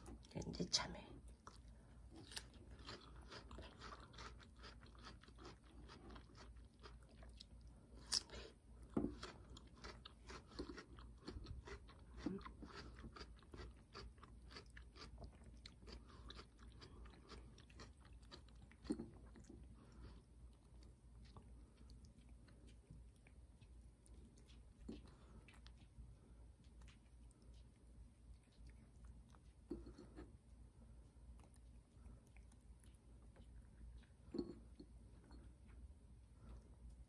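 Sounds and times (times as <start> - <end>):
cat chewing and licking: 0.0 - 37.0.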